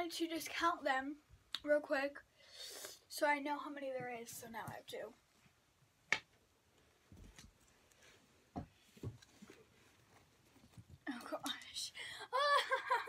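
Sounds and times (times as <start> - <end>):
plush toys rustling: 7.1 - 11.2.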